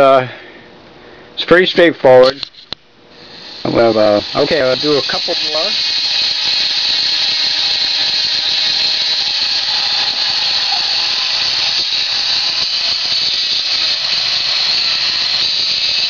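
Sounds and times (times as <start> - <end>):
grinding wheel whining: 3.2 - 16.0.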